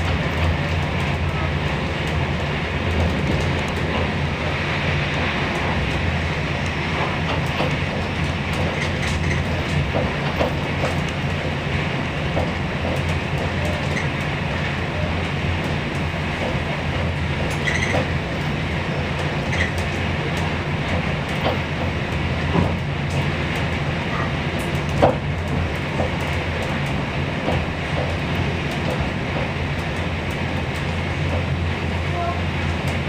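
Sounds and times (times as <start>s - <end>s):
train running rumble: 0.0s - 33.0s
knocks and clicks from wheels: 7.0s - 11.6s, 15.6s - 31.6s.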